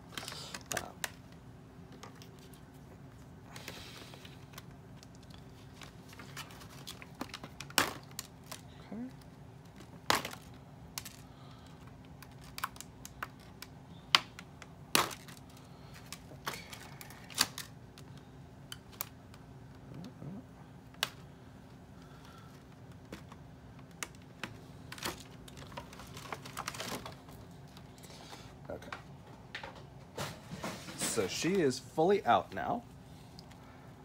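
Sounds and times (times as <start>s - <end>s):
plastic rustling: 0.0s - 13.7s, 22.2s - 28.1s
packaging clicks and snaps: 3.6s - 19.4s.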